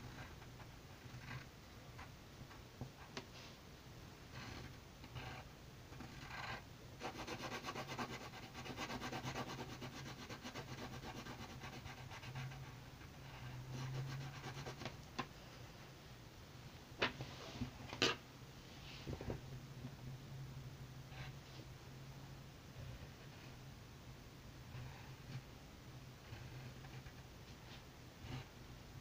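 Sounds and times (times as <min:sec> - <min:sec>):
eraser rubbing on paper: 0:07.0 - 0:12.7, 0:13.4 - 0:14.9.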